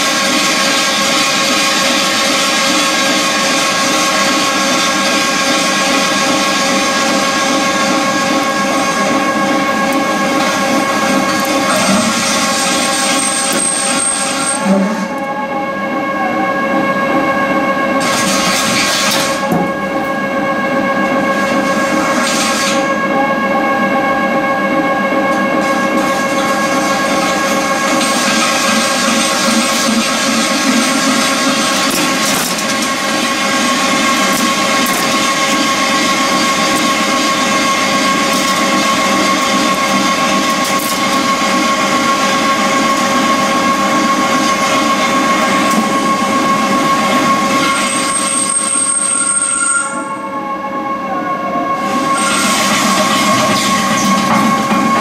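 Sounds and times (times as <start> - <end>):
machine whine: 0.0 - 55.0
metallic ringing squeal: 7.5 - 15.4, 33.4 - 50.5, 51.8 - 55.0.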